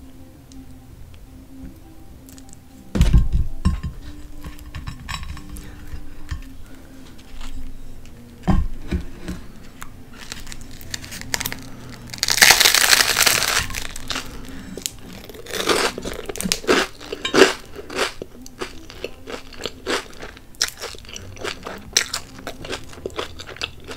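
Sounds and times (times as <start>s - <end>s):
crunchy chewing: 9.1s - 23.9s
biting crunchy toast: 10.2s - 23.9s.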